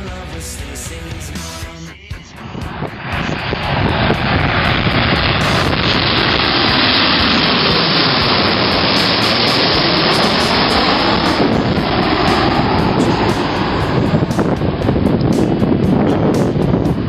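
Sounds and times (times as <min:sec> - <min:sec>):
jet airliner passing overhead: 0:01.5 - 0:17.0.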